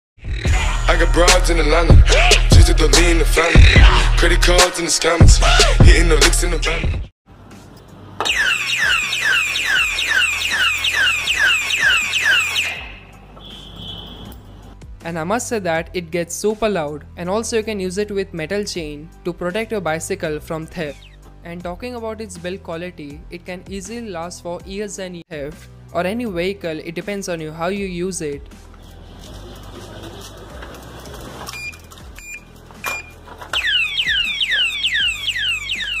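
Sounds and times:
alarm siren falling sweeps: 8.2s - 13.2s, 33.6s - 36.0s.

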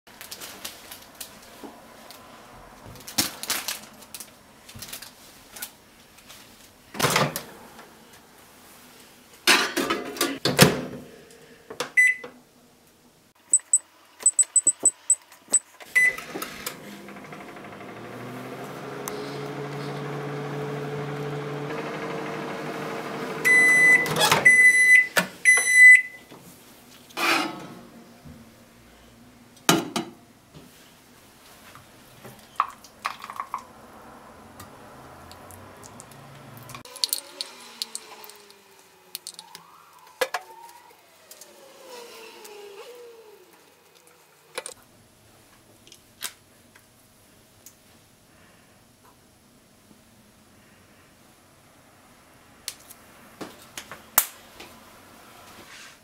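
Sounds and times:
short high beeps: 13.5s - 16.1s
microwave oven humming: 16.0s - 25.1s.

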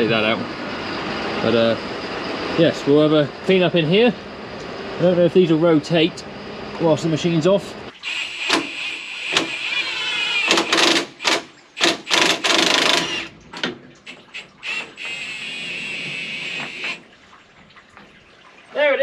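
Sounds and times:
power tool whirring: 8.0s - 13.3s, 14.3s - 17.0s
sharp metallic knocks and clicks: 8.5s - 9.6s, 10.5s - 14.5s.

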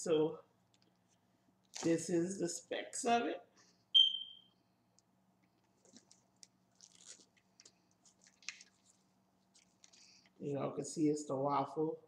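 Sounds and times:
paper packaging rustling: 5.6s - 10.4s.

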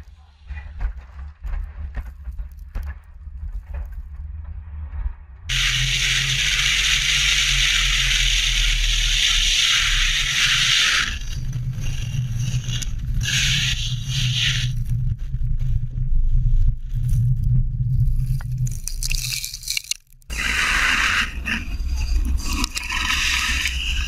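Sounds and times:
tyres hissing on gravel: 5.5s - 14.8s.

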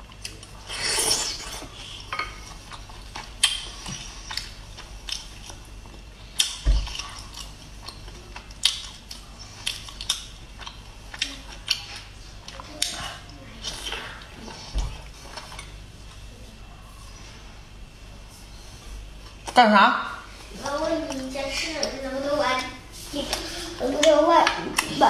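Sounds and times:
wet suck of snail meat: 0.7s - 1.7s.

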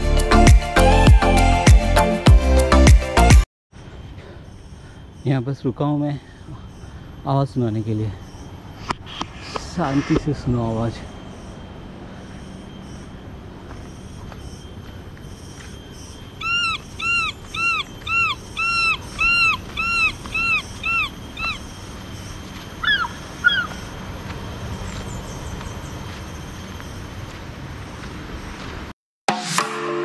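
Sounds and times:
animal calling: 16.2s - 22.0s, 22.8s - 24.0s.

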